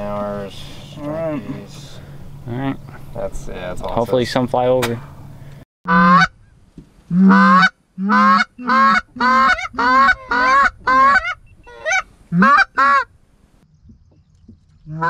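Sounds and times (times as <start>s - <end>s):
goose call honks: 5.9s - 6.3s, 7.1s - 13.1s.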